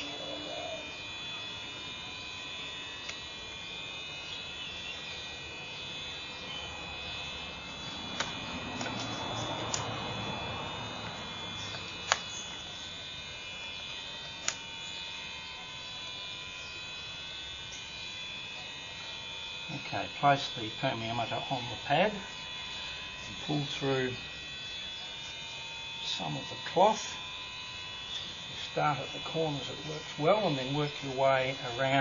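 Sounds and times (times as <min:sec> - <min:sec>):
high-pitched tonal buzz: 0:00.0 - 0:32.0
sharp clicks: 0:08.1 - 0:10.0, 0:11.0 - 0:12.6, 0:14.4 - 0:14.7.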